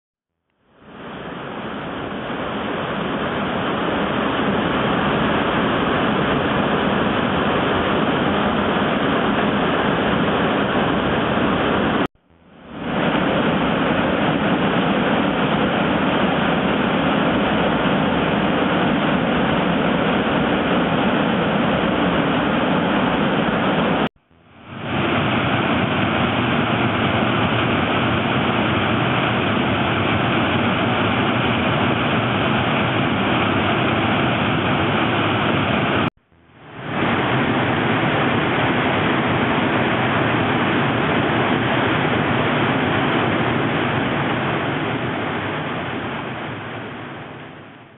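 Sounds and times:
waterfall rushing: 12.8 - 24.1, 36.7 - 47.8.

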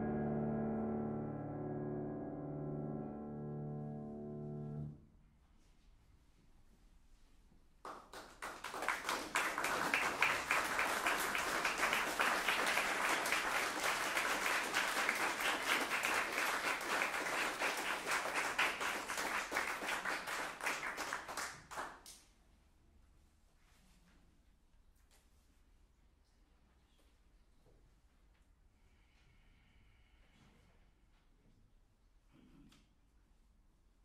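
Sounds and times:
audience applauding: 7.8 - 22.1.

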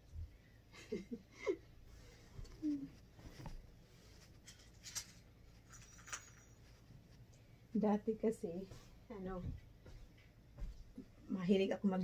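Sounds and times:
bedding rustling: 1.6 - 12.0
soft scuffs: 8.5 - 11.2.

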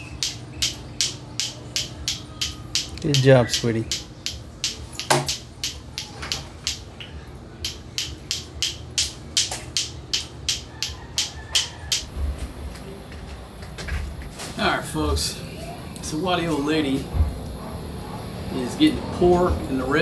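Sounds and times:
clacker toy balls clacking: 0.0 - 7.0, 7.6 - 12.1.

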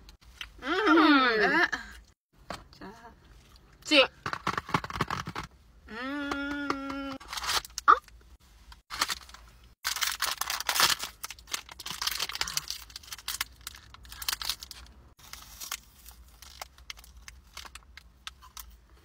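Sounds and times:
plastic wrapper crinkling: 8.9 - 18.8.

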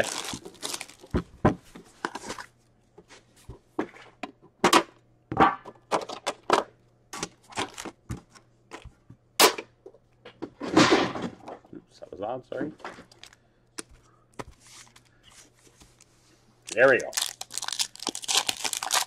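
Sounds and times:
card packs rustling: 0.0 - 2.6, 13.0 - 16.1, 16.7 - 19.0.

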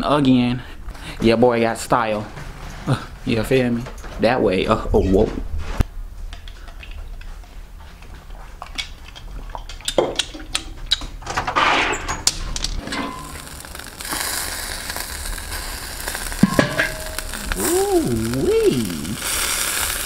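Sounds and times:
glass clinking and handling: 12.8 - 13.6, 16.4 - 17.4
chicken sizzling on grill: 12.8 - 20.0.

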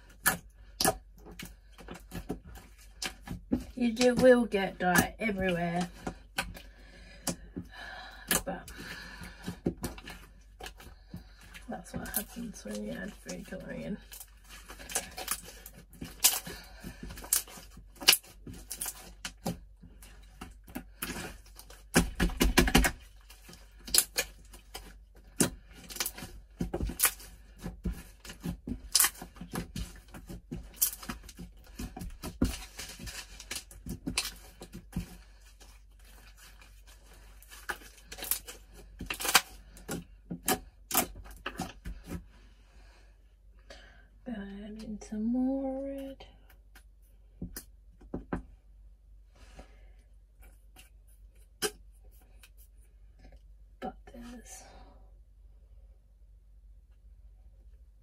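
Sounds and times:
slime squishing and popping: 17.2 - 19.6, 20.4 - 35.1.

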